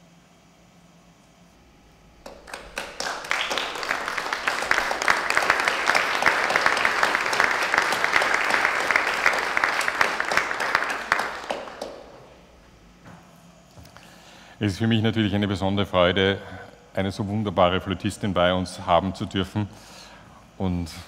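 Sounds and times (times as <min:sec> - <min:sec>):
audience applauding: 0:02.2 - 0:12.3.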